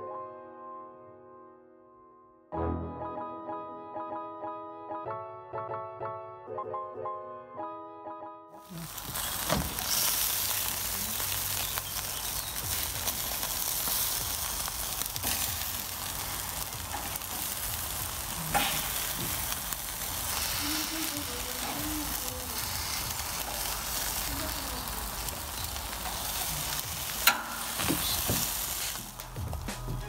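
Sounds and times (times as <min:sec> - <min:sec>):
chicken wings sizzling on grill: 0:08.6 - 0:30.0.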